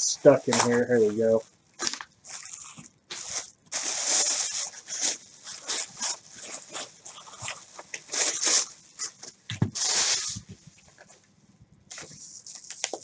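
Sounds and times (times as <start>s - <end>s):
plastic bag crinkling: 0.2s - 11.1s.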